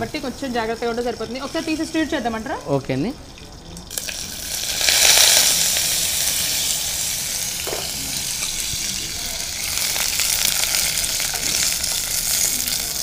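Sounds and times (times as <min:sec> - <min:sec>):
eggplants sizzling in oil: 0:00.0 - 0:13.0.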